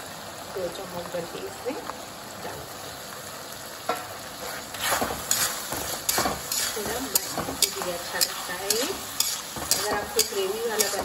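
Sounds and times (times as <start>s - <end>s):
frying sizzle: 0.0s - 11.0s
spatula scraping a metal wok: 4.4s - 11.0s.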